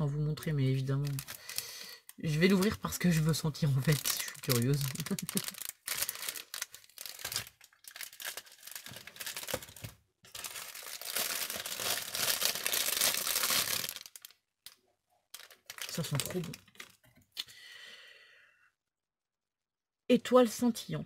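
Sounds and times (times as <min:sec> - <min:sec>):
cellophane crinkling: 0:00.8 - 0:17.1.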